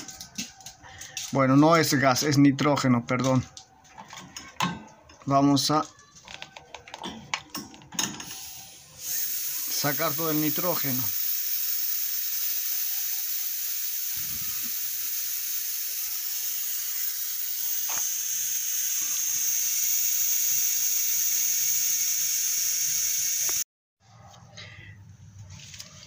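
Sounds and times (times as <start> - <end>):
gas hissing from valve: 8.0 - 23.7.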